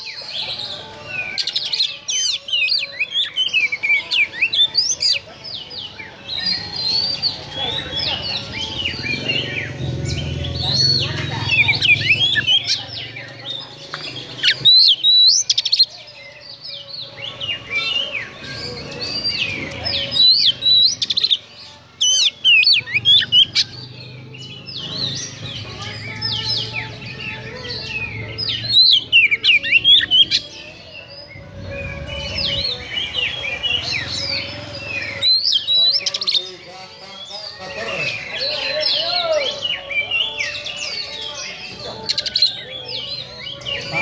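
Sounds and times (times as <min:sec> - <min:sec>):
bird singing whistled notes: 0:13.9 - 0:44.0.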